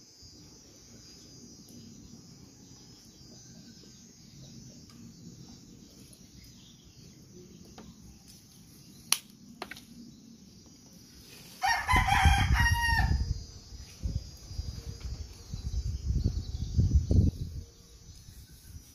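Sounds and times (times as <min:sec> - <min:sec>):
rooster crowing: 0:11.6 - 0:13.3.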